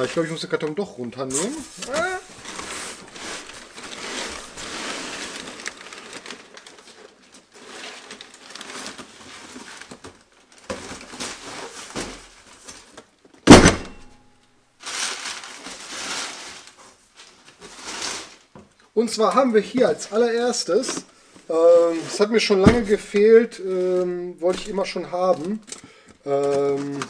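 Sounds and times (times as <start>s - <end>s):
cardboard boxes rustling and scraping: 1.3s - 10.1s, 10.7s - 13.0s, 14.8s - 18.5s, 20.6s - 25.6s
heavy carton thud: 13.5s - 14.2s, 22.6s - 23.2s.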